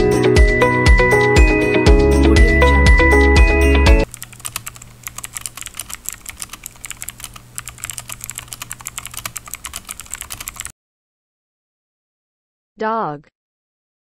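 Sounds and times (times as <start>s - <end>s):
upbeat music: 0.0s - 4.1s
rapid keyboard typing: 4.0s - 10.7s.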